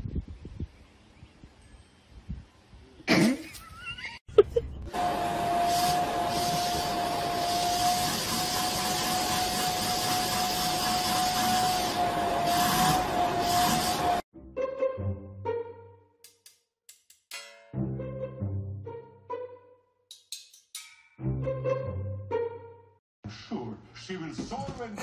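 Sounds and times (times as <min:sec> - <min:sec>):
vacuum cleaner running: 0:04.9 - 0:14.2.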